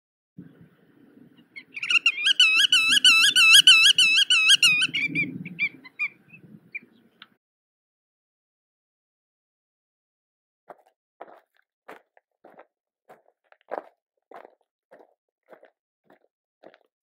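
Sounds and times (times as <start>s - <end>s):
bird calling: 1.2s - 7.4s.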